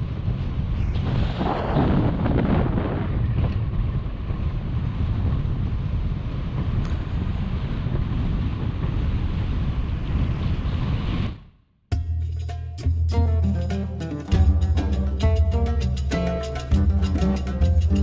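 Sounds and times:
wind buffeting microphone: 0:00.0 - 0:11.5.

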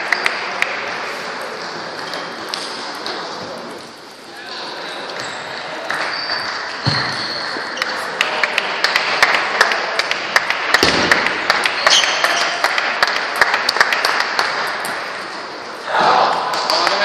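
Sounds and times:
murmur of voices: 0:00.0 - 0:13.4.

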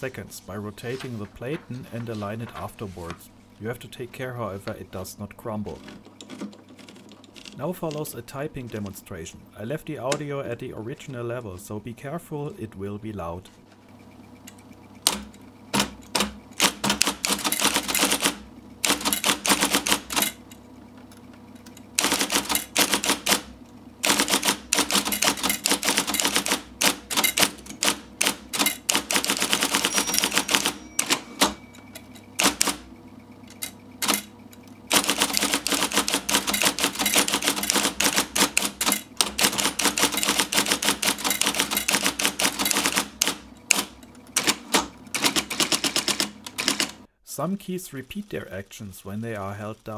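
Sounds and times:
electric typewriter typing: 0:04.7 - 0:09.0, 0:15.0 - 0:20.6, 0:21.6 - 0:32.9, 0:33.5 - 0:47.1
typewriter motor hum: 0:05.4 - 0:09.2, 0:14.4 - 0:47.1.

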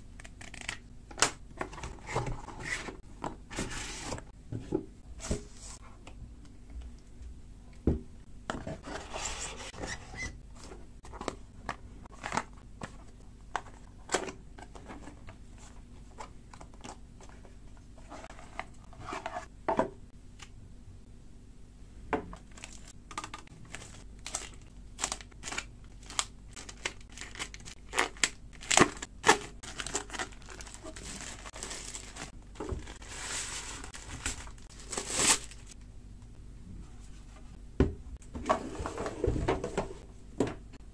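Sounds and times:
paper and cardboard crinkling: 0:22.4 - 0:35.8.

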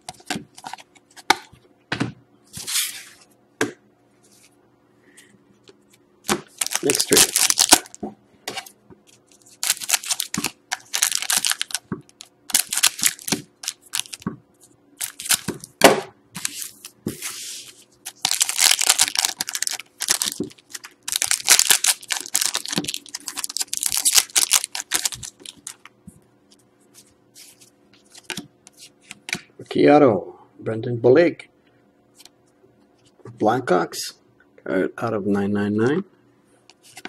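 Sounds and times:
foil wrappers crinkling and tearing: 0:06.5 - 0:08.0, 0:09.1 - 0:14.2, 0:15.0 - 0:15.5, 0:18.0 - 0:25.9.

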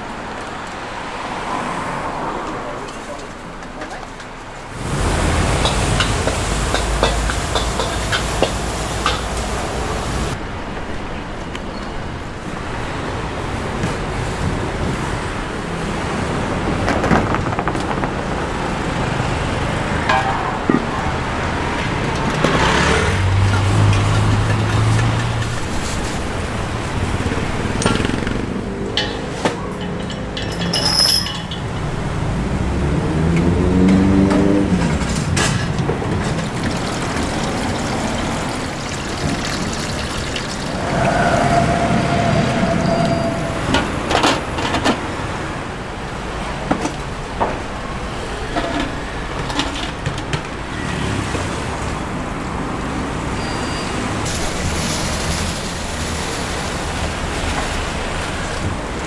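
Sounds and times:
traffic rumble: 0:00.0 - 0:59.0
sharp clatters: 0:16.8 - 0:20.8.

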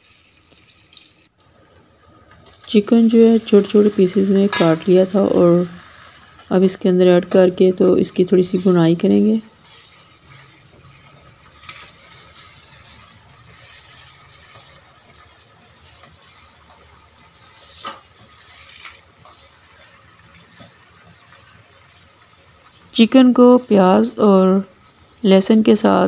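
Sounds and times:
food sizzling in a pan: 0:00.0 - 0:26.0
spatula scraping a pan: 0:08.4 - 0:21.5.

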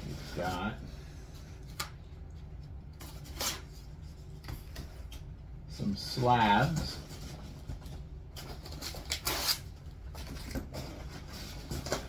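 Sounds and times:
rustling of items in cardboard box: 0:00.0 - 0:01.8, 0:06.2 - 0:12.0.

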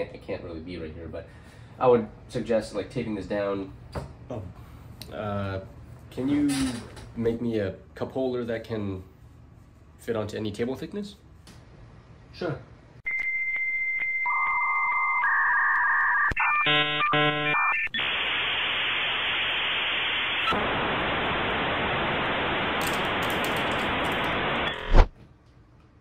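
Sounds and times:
dial-up modem tones: 0:13.1 - 0:20.6
static hiss: 0:17.2 - 0:25.1.

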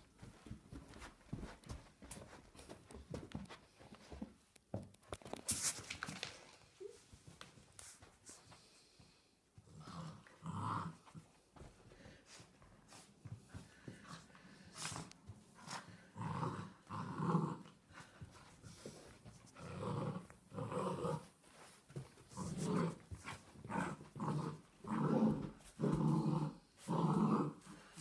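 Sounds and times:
puppy play growling: 0:09.6 - 0:12.0, 0:13.5 - 0:28.0.

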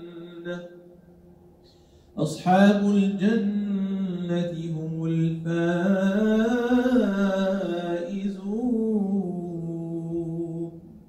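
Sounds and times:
man chanting melodically: 0:00.0 - 0:00.8, 0:02.2 - 0:10.8.

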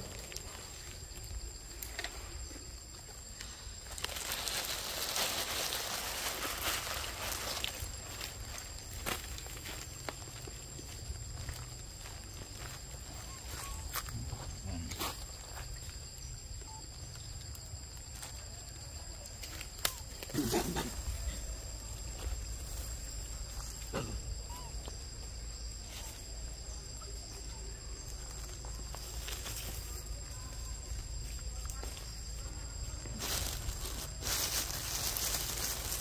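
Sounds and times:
dry leaves rustling and crackling: 0:03.4 - 0:10.4, 0:28.3 - 0:30.5, 0:33.0 - 0:36.0.

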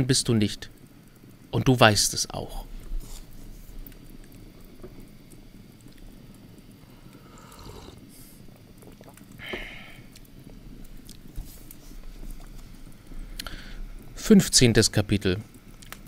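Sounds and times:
man sipping from a mug: 0:06.8 - 0:10.3
swallowing: 0:06.8 - 0:10.3.

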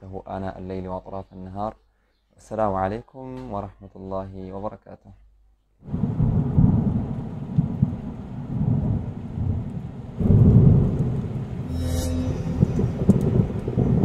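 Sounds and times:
deep noisy rumble: 0:10.4 - 0:14.0
short whoosh: 0:11.6 - 0:13.8.

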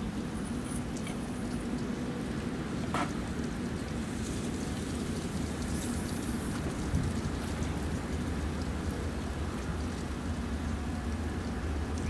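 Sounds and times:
wind rumbling on microphone: 0:06.0 - 0:12.0.

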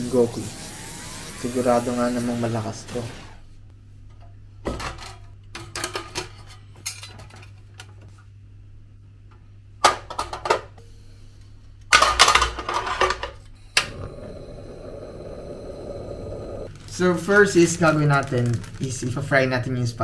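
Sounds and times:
gas burner hissing: 0:00.0 - 0:03.7, 0:13.6 - 0:17.7.

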